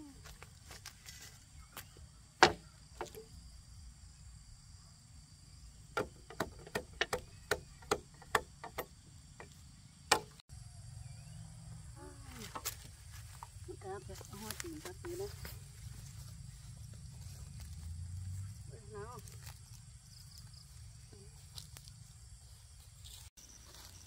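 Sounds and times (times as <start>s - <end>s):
sharp knocks: 2.4s - 3.2s, 6.0s - 10.4s.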